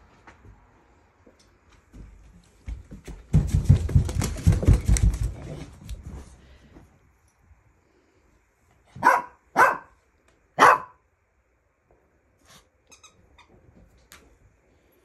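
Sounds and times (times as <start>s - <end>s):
dog barking: 9.0s - 10.0s, 10.6s - 11.0s.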